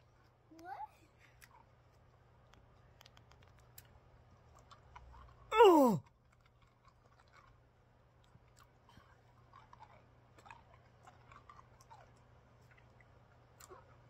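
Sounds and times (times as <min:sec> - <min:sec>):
wet mouth sounds chewing candy: 0:01.2 - 0:14.0
man crying out: 0:05.5 - 0:06.0.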